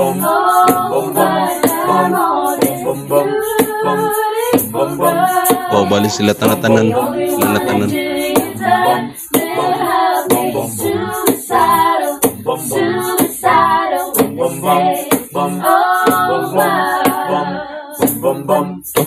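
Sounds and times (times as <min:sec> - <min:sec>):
a cappella group singing in harmony: 0:00.0 - 0:19.0
vocal percussion beat: 0:00.0 - 0:19.0.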